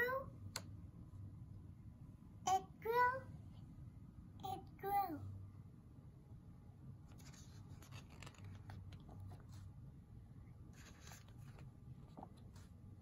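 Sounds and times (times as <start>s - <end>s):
paper page turning: 7.0s - 9.7s, 10.7s - 12.8s.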